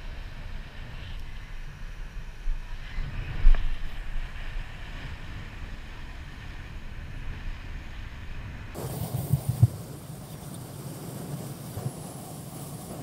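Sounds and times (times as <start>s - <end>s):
wind on microphone: 0.0s - 13.0s
ocean surf breaking: 8.8s - 13.0s.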